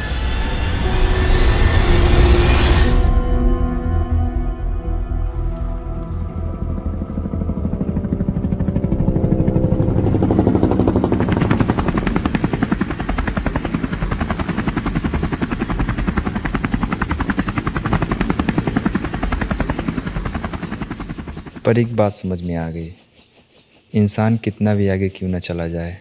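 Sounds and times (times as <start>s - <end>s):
helicopter rotor blades chopping: 6.3s - 25.7s.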